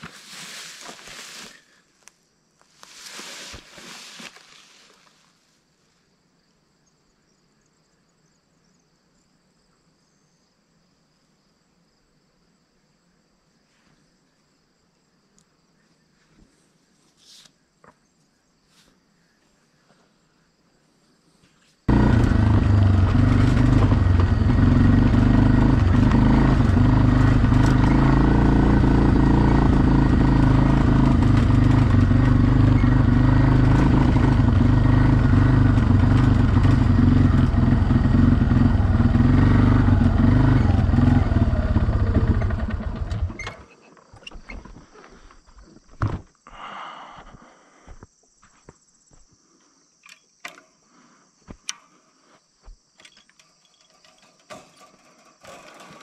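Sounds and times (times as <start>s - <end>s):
atv engine running: 21.9s - 43.8s, 53.8s - 56.0s
wind and road noise: 21.9s - 46.3s.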